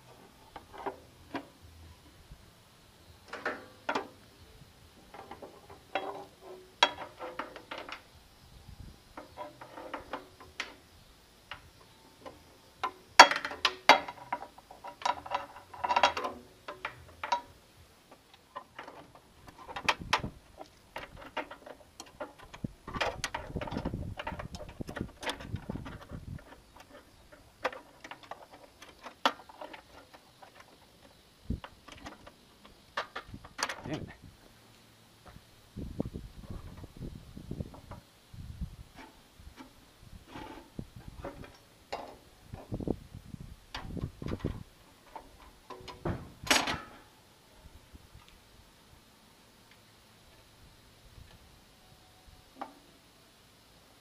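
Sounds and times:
rubbing and scraping: 9.2 - 10.8, 38.9 - 42.9
metal and plastic clicks and rattles: 11.5 - 34.0.

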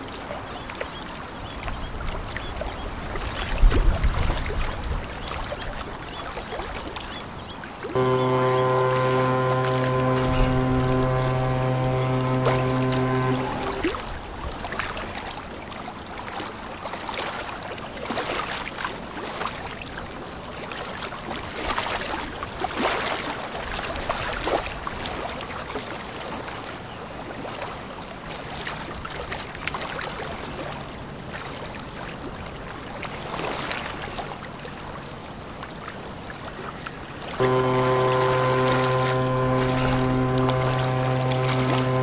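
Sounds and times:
faint low hum: 8.0 - 14.0, 37.4 - 42.0.

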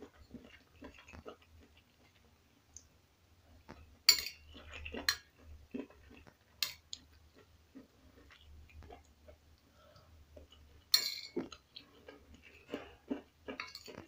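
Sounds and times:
metal spoon clinking on plate: 4.1 - 4.4, 10.9 - 11.4.

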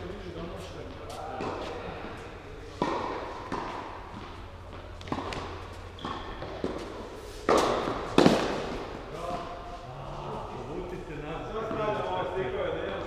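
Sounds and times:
tennis ball bouncing: 2.7 - 9.0
tennis racket strikes: 5.0 - 9.0.

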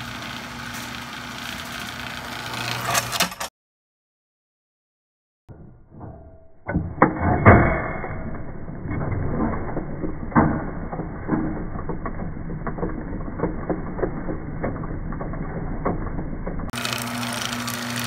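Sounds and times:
higher-pitched motor hum: 0.0 - 3.0, 15.4 - 18.0
garage door opener motor hum: 0.0 - 3.5, 5.7 - 18.0.

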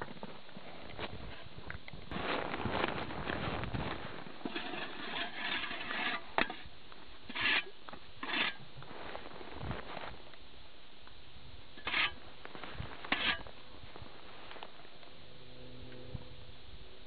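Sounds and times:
boots crunching over snow: 2.1 - 4.9, 8.8 - 10.3
metal shovel scraping ice: 2.1 - 9.3, 11.8 - 13.6.

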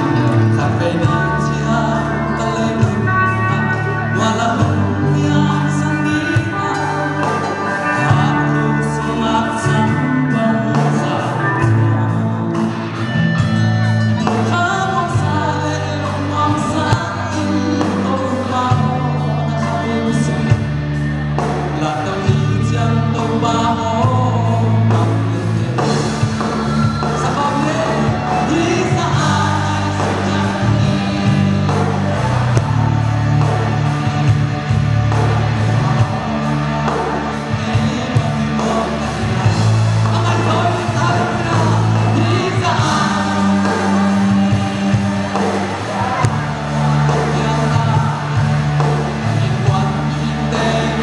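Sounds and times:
men singing: 0.0 - 13.1, 14.2 - 20.7, 21.4 - 51.0
bass: 0.0 - 51.0
electric guitars: 0.0 - 51.0
keyboard: 0.0 - 51.0
drums with cymbals: 12.5 - 51.0.

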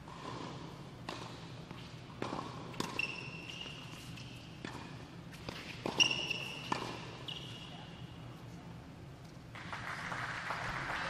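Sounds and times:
high-pitched shoe squeak: 5.9 - 7.9.

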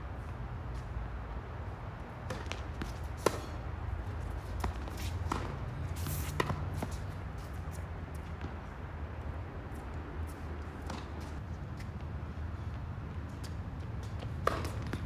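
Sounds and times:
rackets striking tennis ball: 2.2 - 3.7, 4.4 - 7.2, 14.0 - 15.0.

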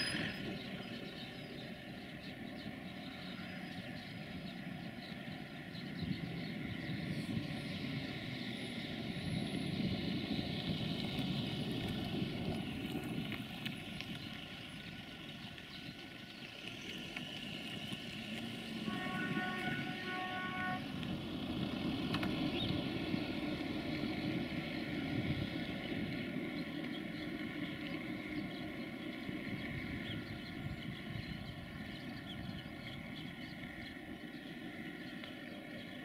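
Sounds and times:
diesel locomotive rumbling: 0.0 - 36.0
locomotive horn toots: 18.8 - 21.1.

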